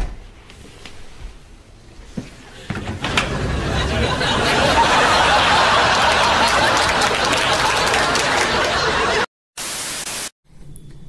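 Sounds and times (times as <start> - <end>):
crowd laughing and chattering: 3.0 - 9.3
static hiss: 9.6 - 10.3.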